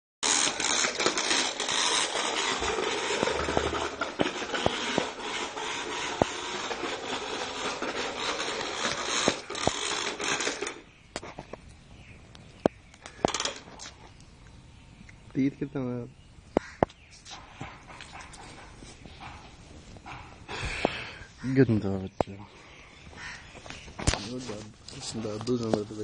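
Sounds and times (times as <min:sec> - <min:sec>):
rough scraping and rustling: 0:00.2 - 0:11.6, 0:22.6 - 0:26.0
sharp clicks: 0:08.2 - 0:14.3.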